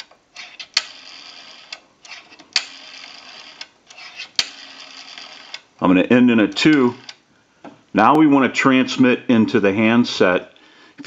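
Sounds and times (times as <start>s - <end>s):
rotary dial whirring back: 0.4s - 5.6s.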